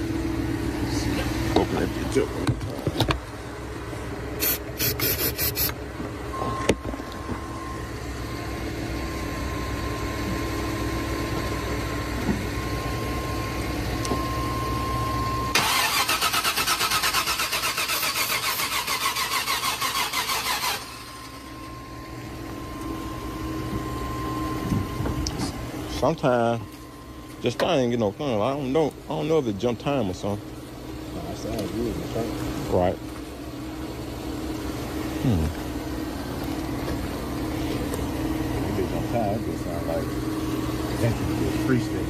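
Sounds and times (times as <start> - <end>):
engine cranking on starter: 15.5 - 21.4.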